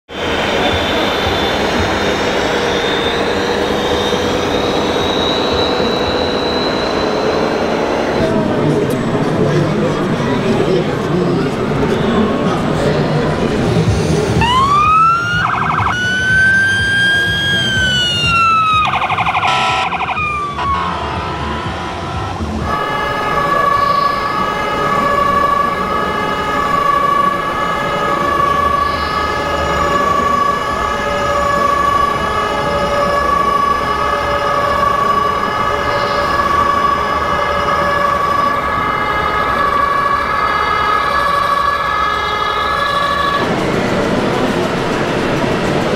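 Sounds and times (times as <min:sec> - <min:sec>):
two-tone fire siren: 0:00.1 - 0:09.0, 0:14.3 - 0:45.9
wailing siren: 0:00.1 - 0:13.3, 0:14.0 - 0:45.9
short horn blast: 0:19.5 - 0:31.6.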